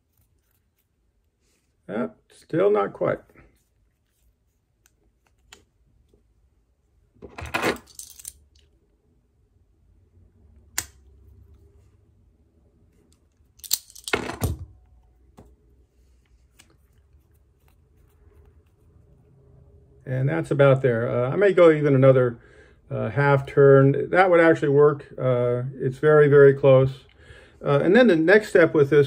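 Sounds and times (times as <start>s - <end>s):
metallic clinking and rattling: 7.6s - 8.6s, 13.6s - 14.6s.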